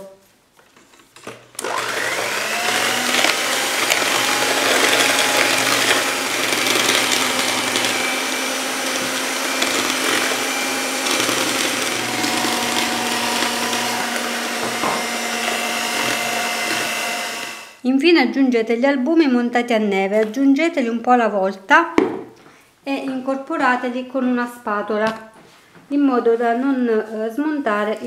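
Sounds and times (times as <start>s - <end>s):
electric hand mixer whine: 1.5s - 17.8s.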